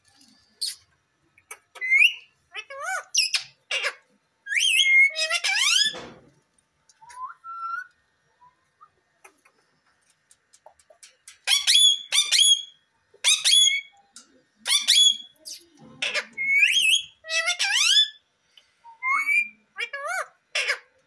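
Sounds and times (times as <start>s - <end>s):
parakeet chirping: 0.6s - 0.8s, 1.4s - 6.0s, 11.4s - 14.0s, 14.6s - 18.2s
parakeet whistled calls: 1.8s - 2.3s, 4.5s - 6.0s, 11.5s - 13.9s, 14.7s - 15.5s, 16.4s - 18.2s, 18.9s - 19.6s.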